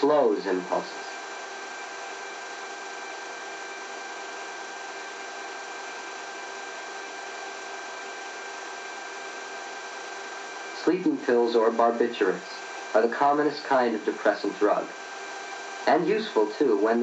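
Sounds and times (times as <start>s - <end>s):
faint high whine: 0.0s - 1.5s, 10.1s - 17.0s.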